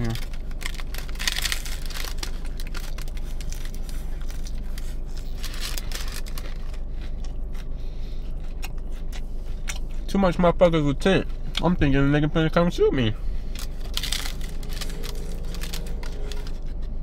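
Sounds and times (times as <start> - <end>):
paper wrapper crinkling: 0.0 - 7.2, 13.4 - 17.0
person biting and chewing: 0.0 - 10.1, 13.4 - 17.0
low car cabin hum: 0.0 - 17.0.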